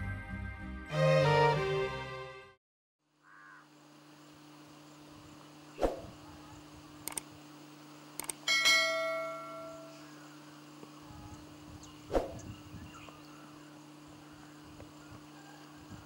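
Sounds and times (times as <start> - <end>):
low electrical hum: 3.0 - 16.0.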